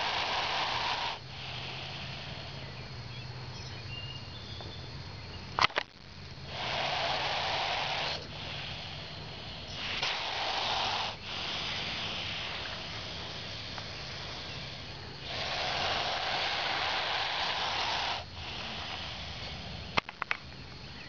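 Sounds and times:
snake hissing: 0.0 - 2.8, 6.1 - 20.0.

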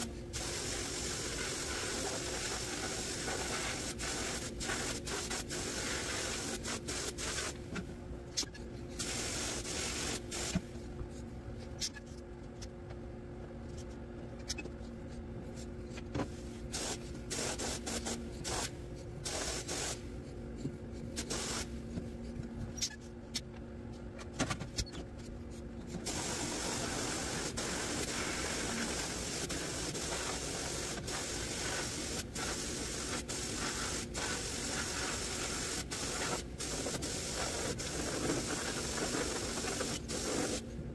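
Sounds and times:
sandblast gun hissing: 0.4 - 7.6, 16.7 - 20.0, 21.2 - 21.7, 26.0 - 40.6.

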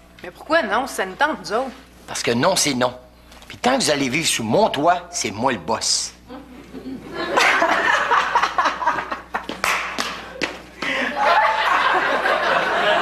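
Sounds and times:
audience laughter: 6.4 - 9.6, 10.2 - 13.0.

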